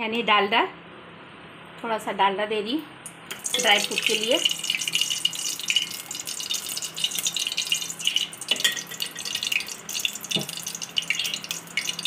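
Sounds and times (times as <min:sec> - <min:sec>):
fat crackling and sizzling in pot: 0:03.3 - 0:12.0.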